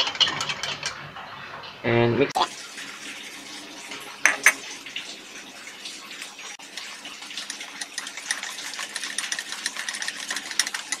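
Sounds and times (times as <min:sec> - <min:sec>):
whisk swishing batter: 0:00.0 - 0:01.0, 0:06.6 - 0:11.0
whisk wires clicking on bowl: 0:06.6 - 0:11.0.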